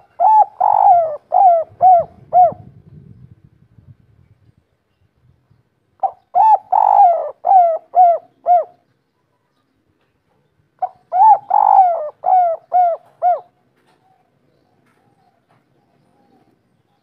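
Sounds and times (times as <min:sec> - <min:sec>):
dove cooing: 0:00.0 - 0:02.8, 0:06.0 - 0:08.8, 0:10.8 - 0:16.6.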